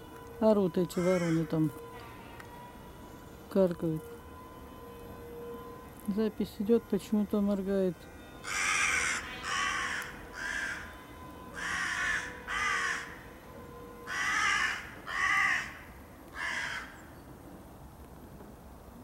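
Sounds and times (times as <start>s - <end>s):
crows cawing: 0.9s - 3.4s, 8.2s - 13.3s, 14.0s - 17.1s.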